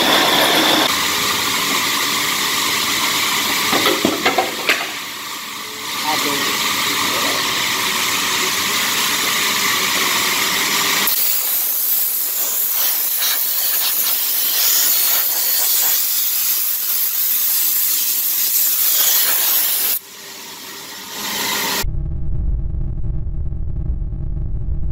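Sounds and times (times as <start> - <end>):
machine hum: 0.0 - 11.4
edge polisher hissing on stone: 0.0 - 21.8.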